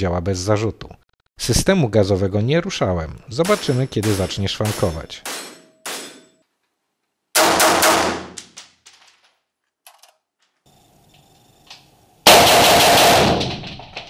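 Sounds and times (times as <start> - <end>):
rifle shots echoing indoors: 7.3 - 9.4, 12.2 - 13.8.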